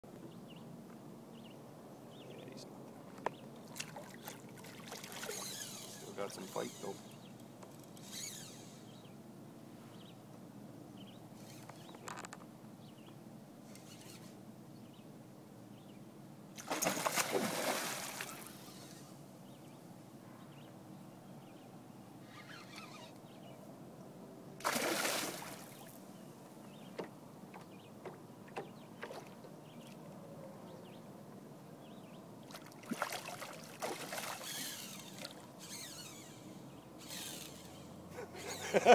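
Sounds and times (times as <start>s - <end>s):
light water sounds: 3.6s - 7.0s, 16.6s - 19.1s, 24.6s - 26.1s, 32.4s - 36.3s
fishing reel drag buzzing: 5.1s - 9.0s, 11.4s - 12.2s, 13.6s - 14.4s, 18.2s - 19.2s, 22.2s - 23.2s, 34.3s - 38.8s.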